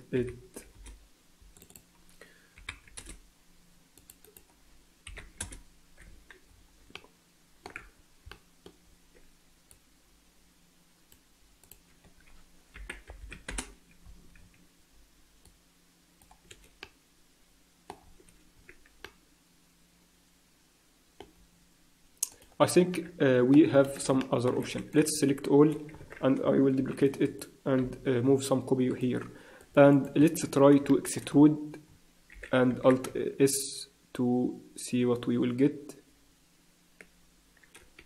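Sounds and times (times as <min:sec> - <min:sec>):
keyboard keys clicking: 0:12.8 - 0:13.8.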